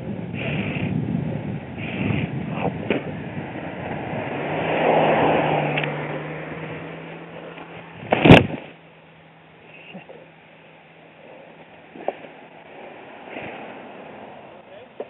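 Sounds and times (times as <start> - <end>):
car passing: 0.0 - 9.4, 10.5 - 15.0
wind and road noise: 0.0 - 15.0
bike crashing into brush: 8.0 - 8.8.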